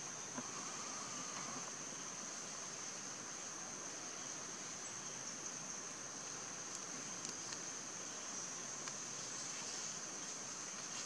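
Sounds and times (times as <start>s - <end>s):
high-pitched insect drone: 0.0s - 6.3s
faint hiss: 0.0s - 11.0s.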